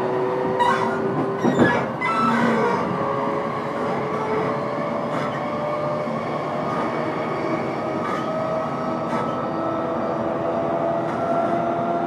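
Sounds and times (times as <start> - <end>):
wheels rolling on rails: 0.3 - 12.0
clacks over rail joints: 0.5 - 3.0, 3.7 - 9.6.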